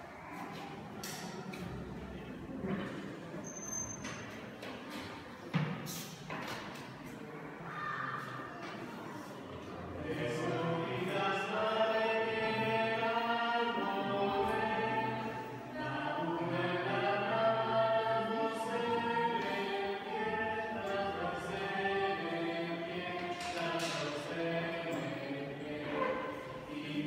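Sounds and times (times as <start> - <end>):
group singing a cappella: 9.8 - 27.0.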